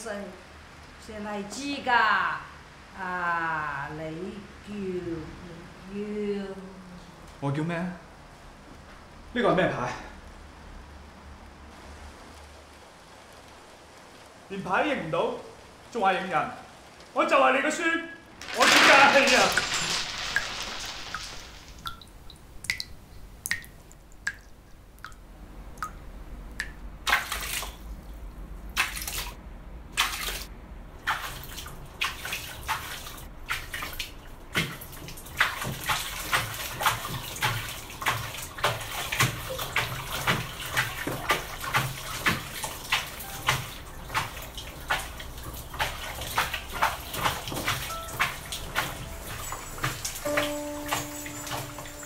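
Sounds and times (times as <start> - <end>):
water splashing in basin: 18.4 - 25.2, 26.6 - 28.0, 28.7 - 52.0
water dripping into plastic basin: 20.1 - 29.4, 30.0 - 51.9.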